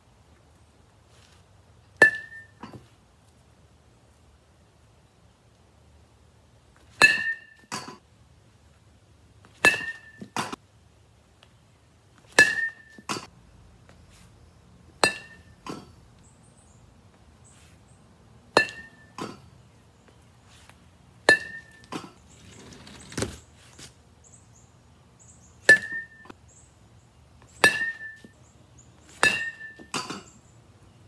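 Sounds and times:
bat hitting ball ringing ping: 2.0s - 2.6s, 7.0s - 7.9s, 9.6s - 10.6s, 12.4s - 13.2s, 15.0s - 15.9s, 18.5s - 19.4s, 21.3s - 21.9s, 25.7s - 26.3s, 27.6s - 28.2s, 29.2s - 30.3s.

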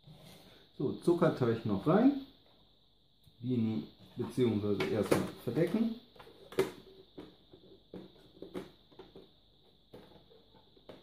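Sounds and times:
hands tapping and scraping plastic: 4.8s - 11.0s.

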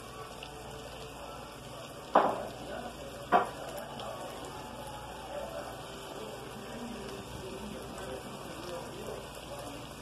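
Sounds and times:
plantain frying in a pan: 0.0s - 10.0s
sharp knock: 2.2s - 2.4s.

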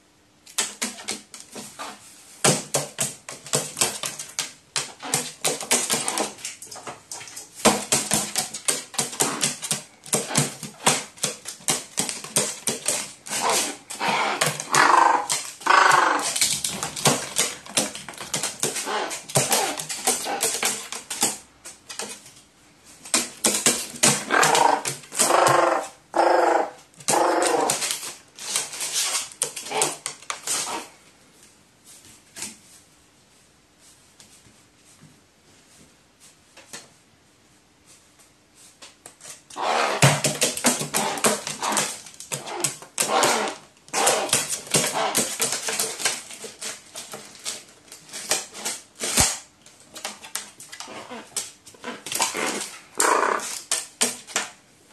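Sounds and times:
paper crackling and tapping: 0.4s - 25.5s, 27.0s - 30.9s, 38.7s - 54.6s
crow gurgling calls: 13.4s - 16.4s, 24.2s - 27.8s, 52.3s - 53.5s.

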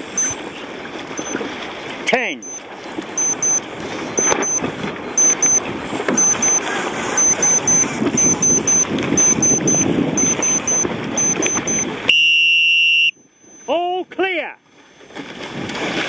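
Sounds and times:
short high beeps: 0.0s - 0.4s, 1.2s - 1.4s, 2.4s - 2.6s, 3.2s - 13.8s
wind and water rushing: 0.0s - 12.2s, 14.0s - 16.0s.

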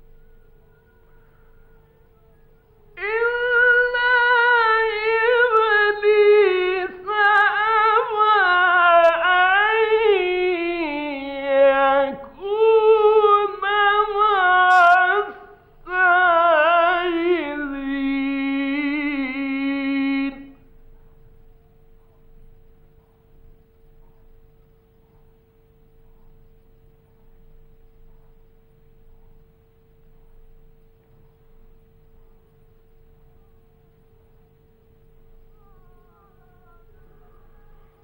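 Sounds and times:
faint high hum: 0.0s - 38.0s.

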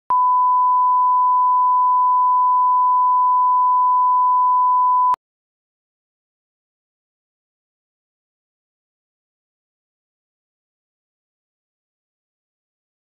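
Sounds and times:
steady pure test tone beep: 0.1s - 5.2s.

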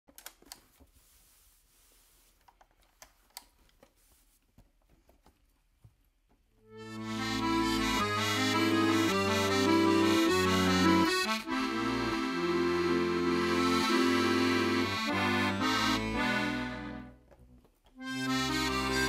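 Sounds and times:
button accordion melody: 6.7s - 17.2s, 18.0s - 19.0s
clicks of handling accordion: 6.7s - 19.0s.

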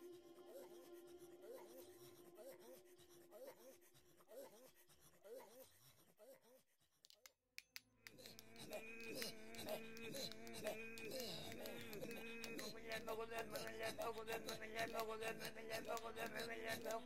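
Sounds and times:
quiet music with sustained tones: 0.0s - 4.0s, 8.2s - 17.0s
faint clicks: 7.0s - 17.0s.

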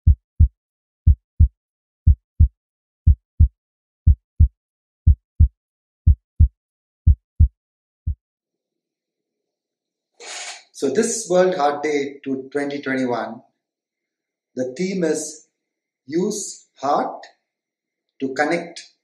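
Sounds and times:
heartbeat thumps: 0.0s - 8.2s.

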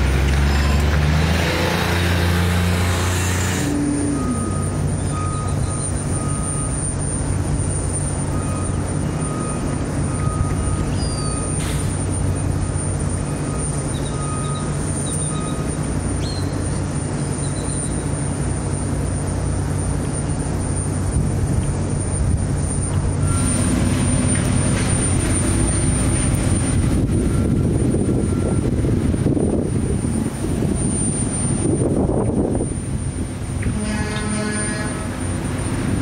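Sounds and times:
diesel machinery engine running: 0.0s - 36.0s
short high beeps: 3.7s - 6.9s.

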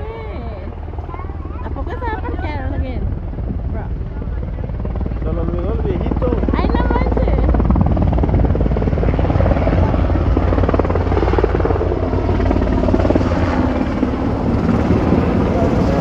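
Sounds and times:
helicopter flying low overhead: 0.0s - 16.0s.

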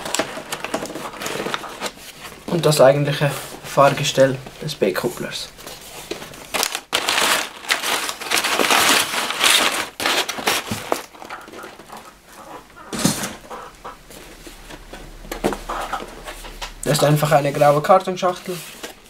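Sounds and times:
packing paper rustling: 0.0s - 13.5s.

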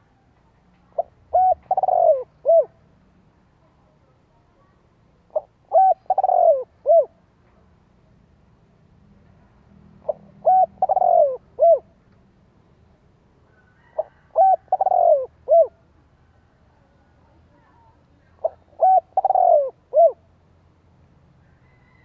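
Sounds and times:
dove cooing: 0.9s - 2.8s, 5.3s - 7.2s, 10.0s - 12.0s, 13.8s - 15.8s, 18.4s - 20.2s.

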